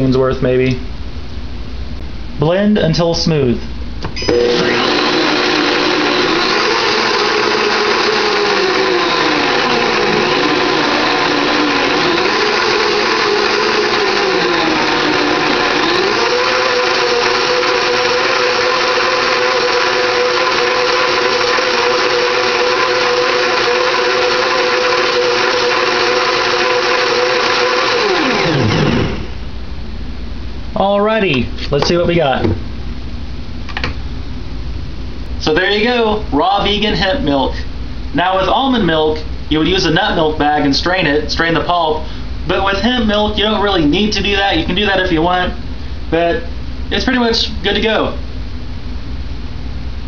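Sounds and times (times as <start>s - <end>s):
blender motor running: 4.2s - 29.4s.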